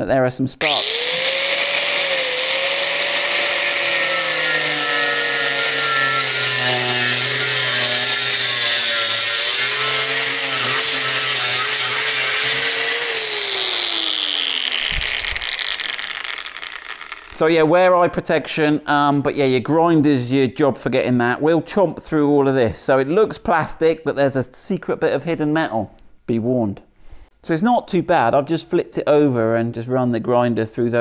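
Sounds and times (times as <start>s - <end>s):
angle grinder cutting: 0.6s - 17.5s.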